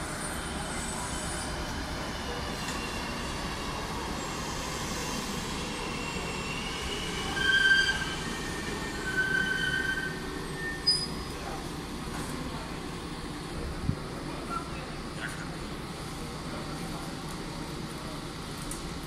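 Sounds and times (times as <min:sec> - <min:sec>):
diesel train rumbling: 0:00.0 - 0:19.0
train wheels squealing: 0:00.2 - 0:11.4.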